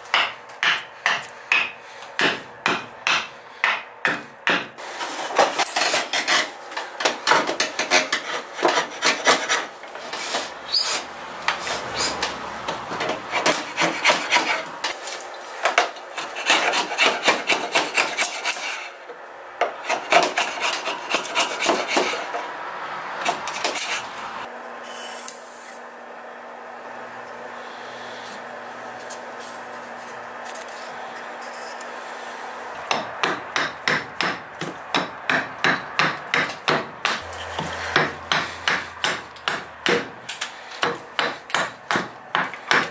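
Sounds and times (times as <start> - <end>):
hatchet striking wood: 0.1 - 4.8, 32.9 - 42.9
hand file rasping on wood: 7.5 - 11.0, 13.0 - 14.8, 16.2 - 19.0, 19.8 - 22.4, 37.1 - 39.2.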